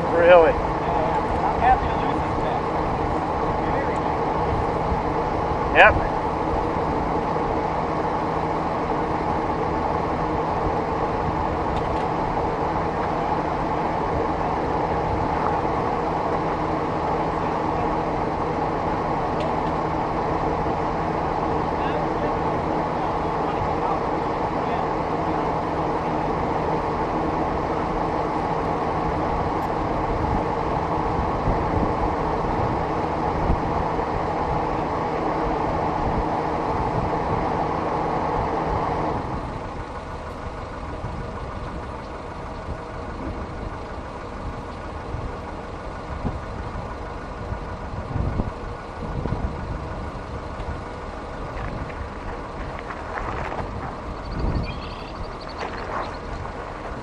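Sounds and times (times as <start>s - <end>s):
vehicle engine humming: 0.0s - 57.0s
wind noise: 29.0s - 39.8s, 46.0s - 57.0s.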